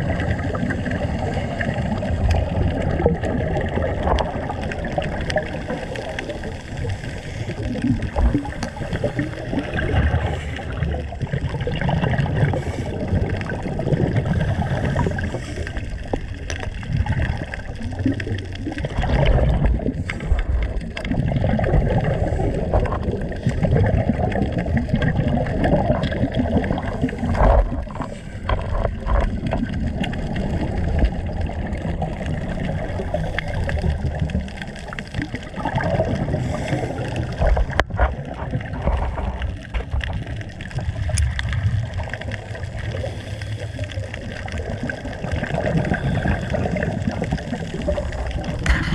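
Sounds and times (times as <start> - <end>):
underwater water gurgling: 0.0 - 48.9.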